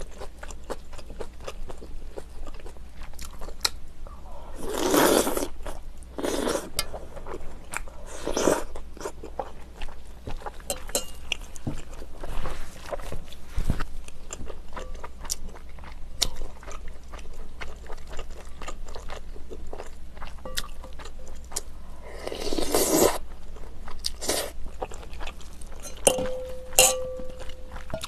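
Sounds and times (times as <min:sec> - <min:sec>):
soft chewing: 0:00.0 - 0:28.0
slurping: 0:06.2 - 0:08.7
tableware clinking: 0:10.7 - 0:11.2, 0:25.8 - 0:28.0.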